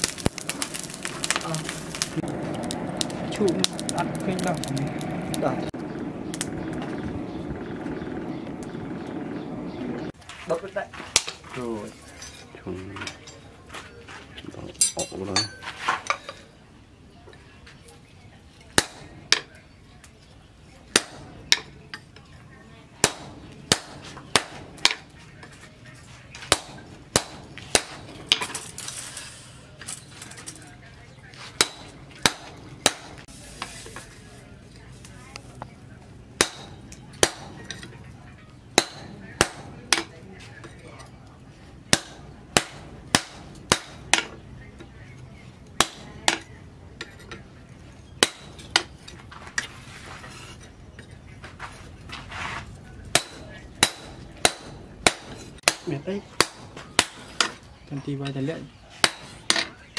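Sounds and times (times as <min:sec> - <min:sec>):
hammer striking metal on anvil: 0:23.0 - 0:25.0, 0:26.5 - 0:28.4, 0:31.6 - 0:33.2, 0:36.4 - 0:37.8, 0:38.8 - 0:40.1, 0:41.9 - 0:44.4, 0:48.2 - 0:48.9, 0:53.1 - 0:57.5, 0:59.0 - 0:59.7.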